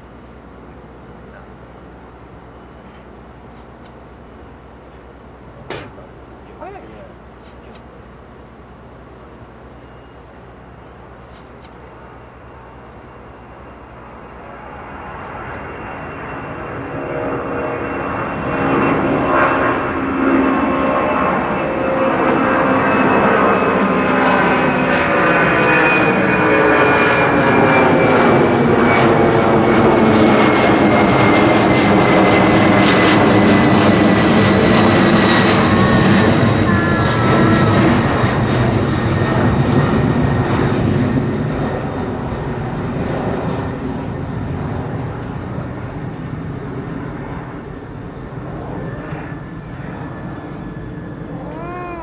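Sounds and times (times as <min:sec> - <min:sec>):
jet engine rumble and whine: 0:00.0 - 0:52.0.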